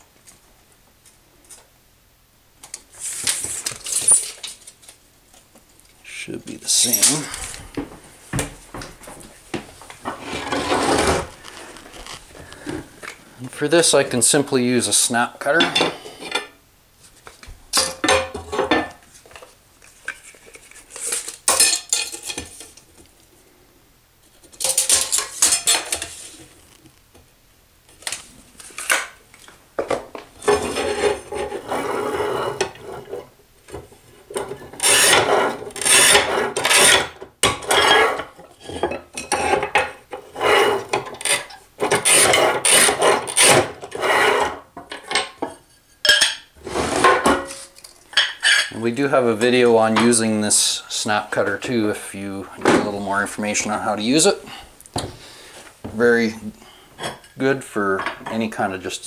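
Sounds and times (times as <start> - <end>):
tile cutter wheel scraping: 10.1 - 12.2, 30.4 - 33.2, 34.7 - 44.7, 46.6 - 47.7.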